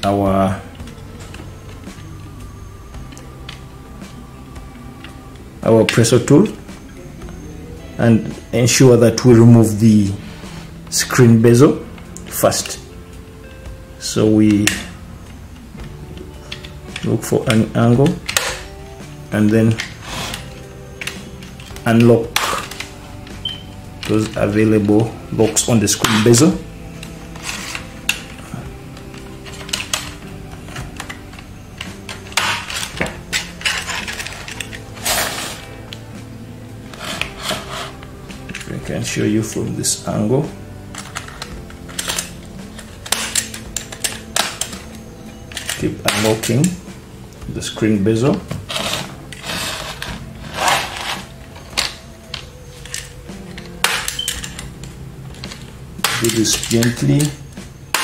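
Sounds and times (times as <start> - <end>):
plastic clips snapping: 14.5 - 18.7, 19.7 - 36.0, 40.9 - 46.8, 48.3 - 58.0
plastic scraping: 29.1 - 35.8, 36.9 - 38.8, 48.4 - 54.7.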